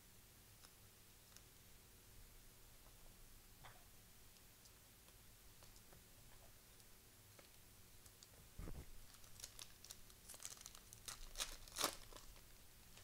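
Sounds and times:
plastic packaging crinkling: 7.4 - 13.0.

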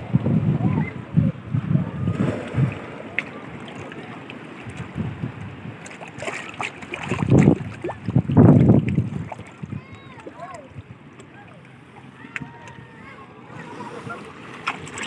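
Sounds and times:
wind gusting on microphone: 0.0 - 5.9, 7.0 - 11.0
waves washing over rocks: 0.0 - 11.3, 13.0 - 15.0.

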